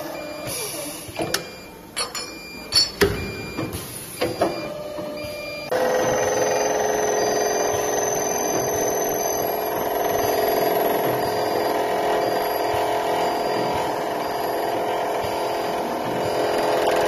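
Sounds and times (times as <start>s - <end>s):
steady motor hum: 5.2s - 17.0s.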